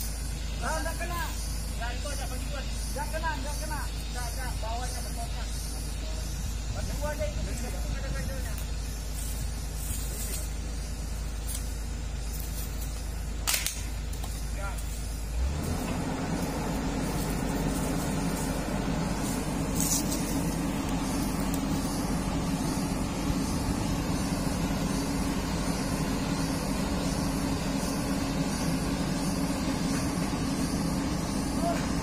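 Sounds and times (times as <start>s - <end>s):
excavator diesel engine revving: 14.8s - 32.0s.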